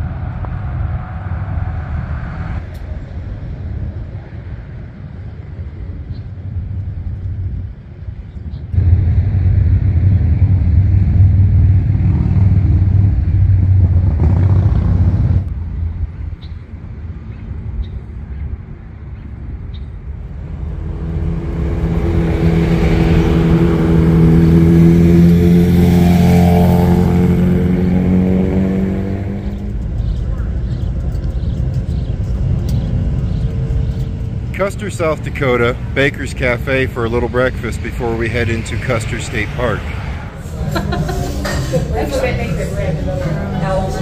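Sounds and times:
motorcycle engine running: 8.8 - 15.5.

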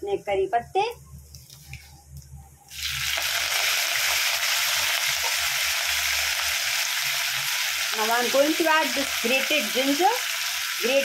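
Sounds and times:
leaves sizzling in hot oil: 2.7 - 11.0.

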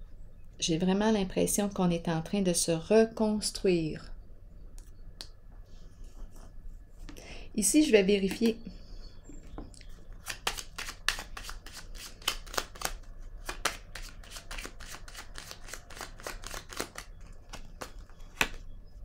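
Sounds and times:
cards being shuffled: 10.1 - 18.6.

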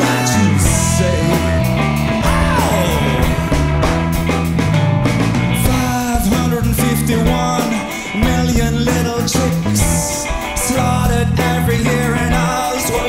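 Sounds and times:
live blues band playing: 0.0 - 13.0.

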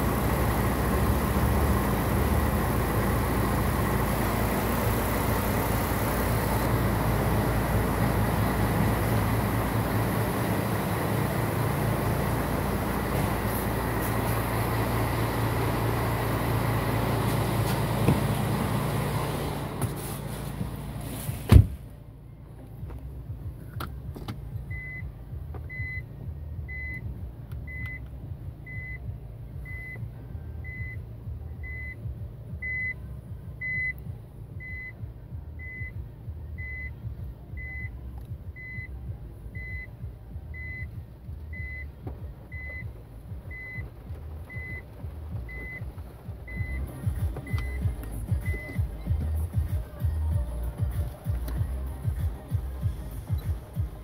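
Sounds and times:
car engine idling: 0.0 - 54.0
car door shutting: 13.0 - 14.5, 17.2 - 21.9, 22.8 - 24.5, 41.8 - 49.0
reverse warning beep: 25.7 - 26.1, 26.7 - 27.1, 27.7 - 33.0, 33.6 - 34.0, 34.6 - 35.0, 35.6 - 38.0, 38.6 - 49.0.

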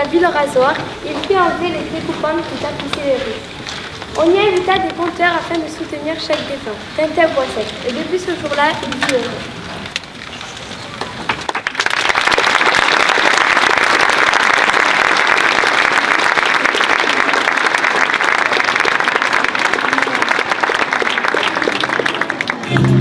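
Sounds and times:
audience applause: 10.8 - 23.0.

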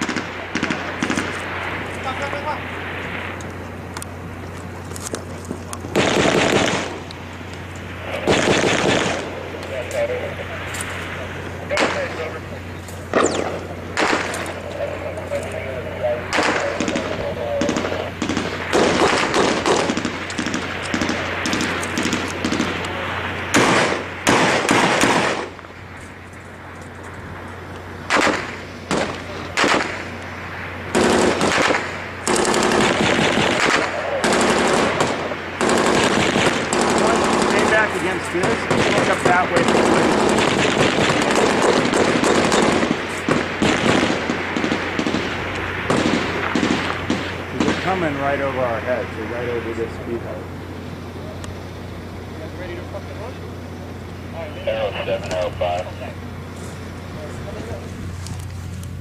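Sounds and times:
automatic gunfire bursts: 5.9 - 7.0, 8.2 - 9.3, 13.1 - 14.5, 16.3 - 22.8, 23.5 - 25.5, 28.1 - 30.1, 30.9 - 48.0
single gunshots: 5.9 - 7.0, 8.2 - 9.3, 11.7 - 12.4, 13.1 - 14.6, 16.3 - 25.6, 28.1 - 30.2, 30.9 - 48.2.

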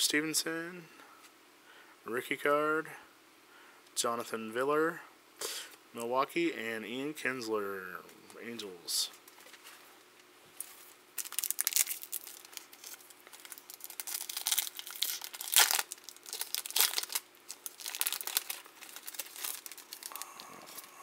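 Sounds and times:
foil wrapper crinkling and tearing: 11.2 - 20.9.

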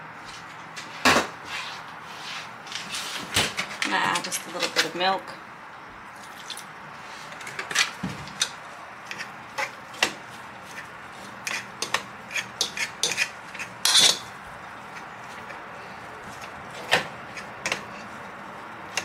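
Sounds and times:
fork scraping metal pot: 7.5 - 14.3, 16.4 - 18.2
fork mashing potatoes in pot: 7.5 - 19.0.

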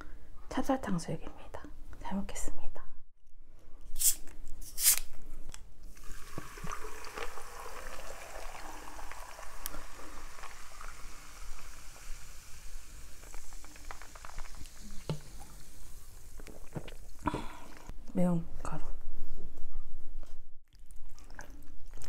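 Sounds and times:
water fizzing: 5.9 - 17.9
water pouring over ice: 6.0 - 17.2
hiss of escaping gas: 8.2 - 16.4.

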